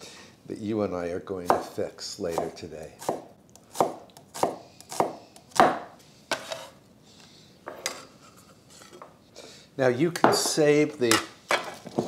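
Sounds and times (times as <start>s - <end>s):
knife slicing onion on wooden board: 2.3s - 6.8s.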